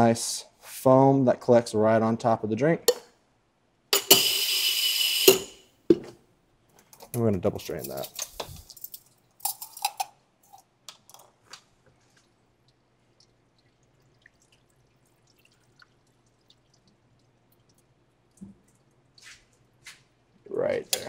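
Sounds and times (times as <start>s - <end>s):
liquid dripping and trickling: 11.9s - 19.8s.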